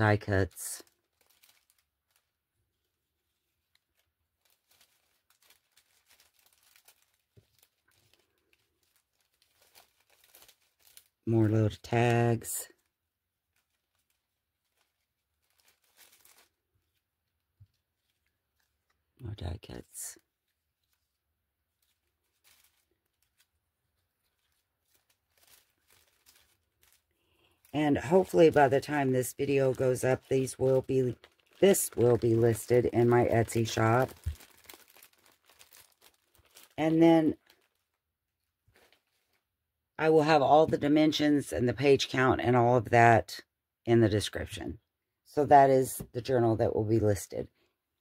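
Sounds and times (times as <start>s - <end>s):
paper rustling: 0.4s - 11.1s, 13.5s - 18.9s, 20.4s - 37.9s.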